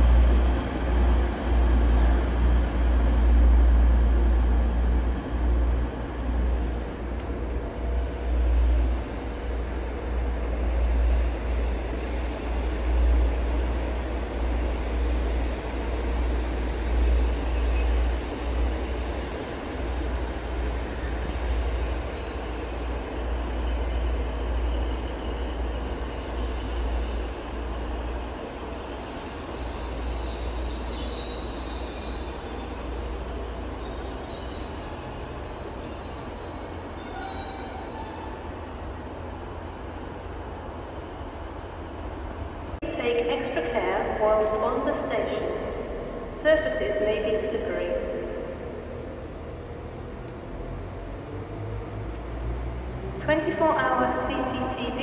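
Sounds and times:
train rumbling: 0:00.0 - 0:55.0
train wheel squeal: 0:10.8 - 0:12.6, 0:13.8 - 0:22.6, 0:28.8 - 0:38.6.

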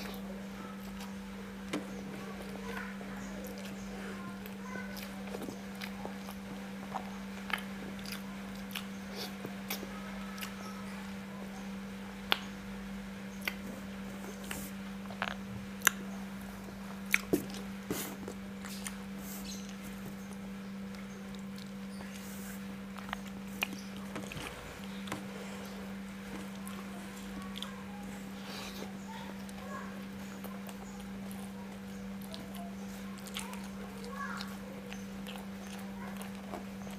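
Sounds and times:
steady low hum: 0:00.0 - 0:36.9
wet chewing and mouth smacks: 0:04.4 - 0:09.8, 0:13.4 - 0:13.7, 0:28.8 - 0:36.9.

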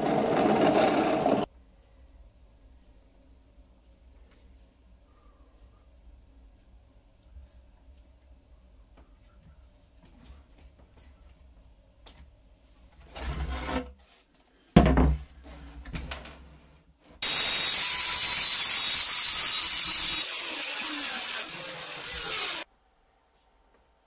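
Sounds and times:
cordless drill driving screws: 0:17.2 - 0:22.6.

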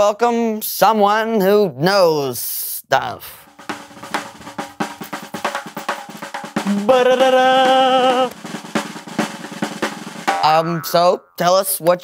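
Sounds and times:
snare drum roll: 0:03.4 - 0:10.6
person singing a fanfare: 0:06.7 - 0:08.4.

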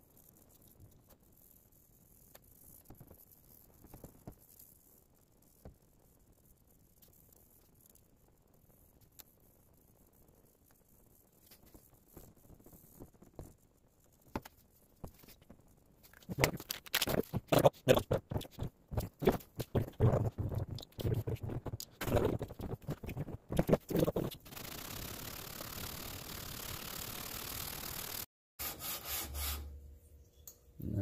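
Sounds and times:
metal rubbing on sandpaper: 0:17.2 - 0:29.7.

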